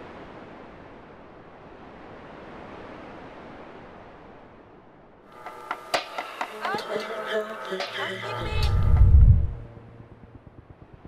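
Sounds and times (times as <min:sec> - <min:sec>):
wind over choppy water: 0:00.0 - 0:05.4, 0:08.4 - 0:11.0.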